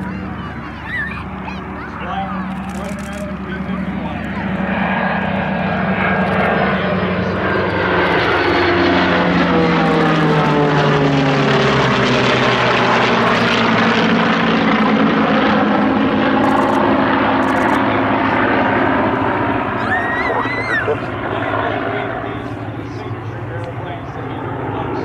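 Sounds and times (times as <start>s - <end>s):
aircraft engines droning overhead: 0.0s - 25.0s.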